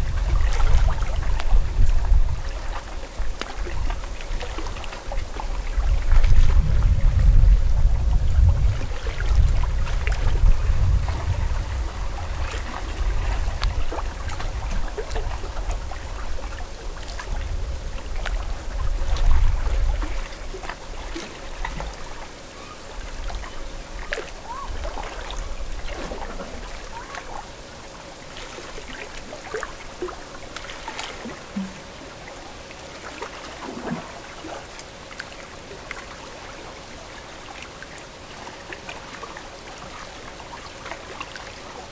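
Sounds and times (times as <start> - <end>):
water lapping at shoreline: 0.0 - 41.9
strong low rumble: 5.7 - 20.2.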